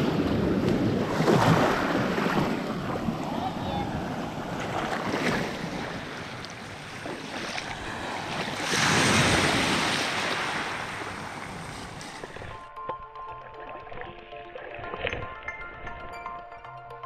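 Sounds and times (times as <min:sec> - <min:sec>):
waves washing over pebbles: 0:00.0 - 0:12.6.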